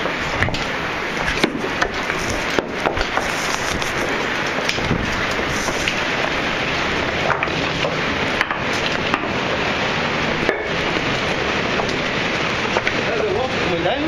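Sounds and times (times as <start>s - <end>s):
stream water rushing: 0.0s - 14.0s
boots scraping on wet rock: 1.2s - 6.2s.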